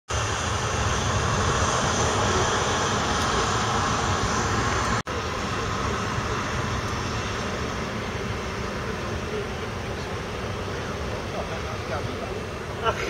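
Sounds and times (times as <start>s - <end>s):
jet engines roaring: 0.1s - 13.0s.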